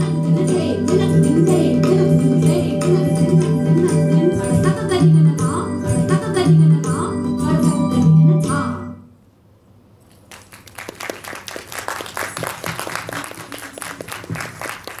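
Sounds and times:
music: 0:00.0 - 0:09.1
audience applause: 0:10.3 - 0:15.0.

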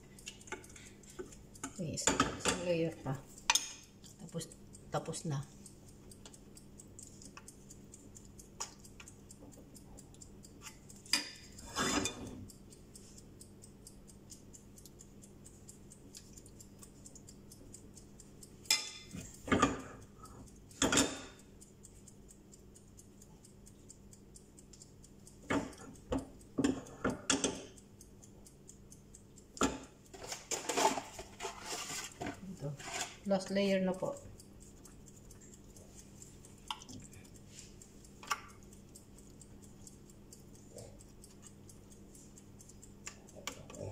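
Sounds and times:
faint steady ticking: 0:00.0 - 0:43.9
metal spoon clinking on cookware: 0:03.5 - 0:03.8, 0:18.7 - 0:19.1.

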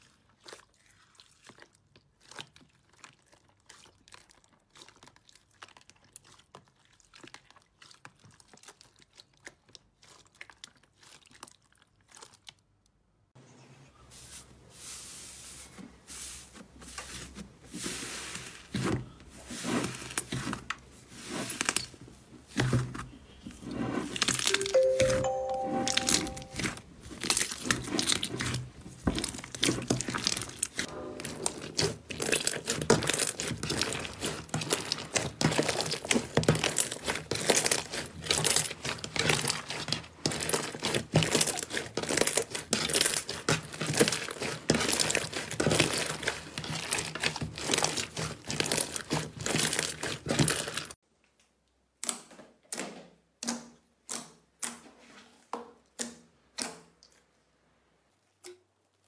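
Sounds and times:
slime crackling and crinkling: 0:00.0 - 0:13.1, 0:16.6 - 0:25.6, 0:26.4 - 0:30.9, 0:31.5 - 0:51.0.

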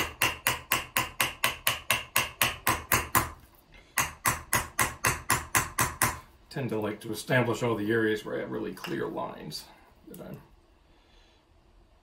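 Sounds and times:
hammer striking copper: 0:00.0 - 0:03.4, 0:04.0 - 0:06.3.

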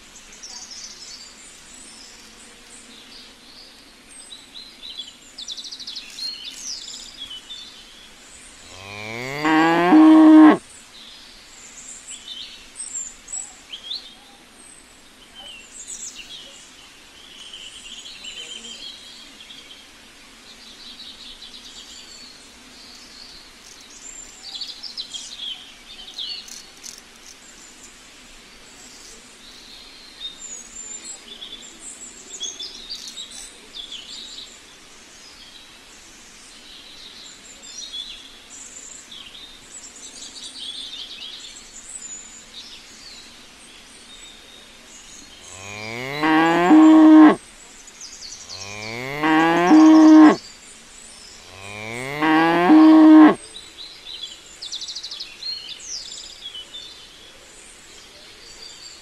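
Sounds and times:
small birds chirping: 0:00.3 - 0:10.6, 0:20.9 - 0:34.5, 0:36.5 - 0:59.0
cow mooing: 0:08.6 - 0:10.6, 0:45.4 - 0:47.4, 0:48.5 - 0:50.4, 0:51.4 - 0:53.4.

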